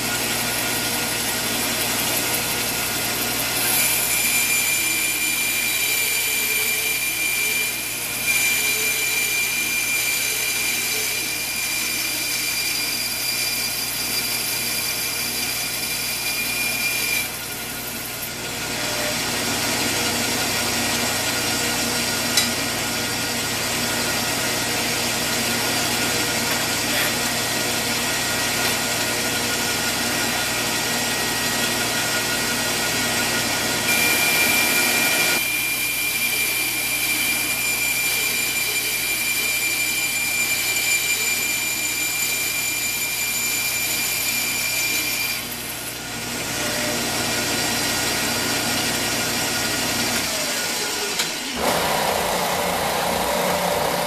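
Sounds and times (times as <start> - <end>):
bandsaw cutting metal: 0.0 - 54.0.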